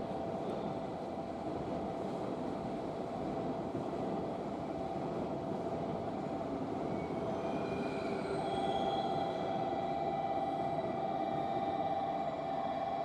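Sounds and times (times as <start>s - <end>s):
faint high whining tones: 6.8s - 13.0s.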